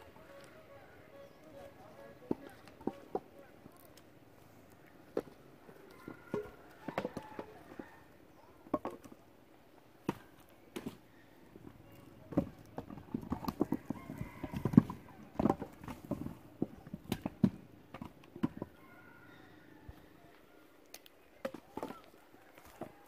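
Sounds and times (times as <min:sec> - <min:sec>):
firewood clattering: 0:02.2 - 0:04.1, 0:05.1 - 0:08.0, 0:08.6 - 0:09.2, 0:10.0 - 0:18.8.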